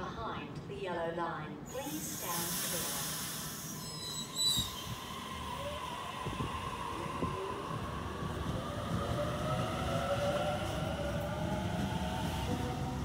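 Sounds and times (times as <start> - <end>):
electric train motors whining: 1.8 - 13.0
wheels rumbling on rails: 4.0 - 13.0.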